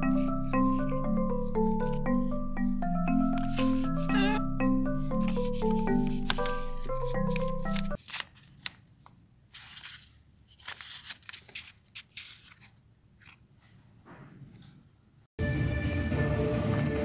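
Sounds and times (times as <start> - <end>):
marimba background music: 0.0 - 8.0
paper wallet rustling and crinkling: 5.2 - 13.7.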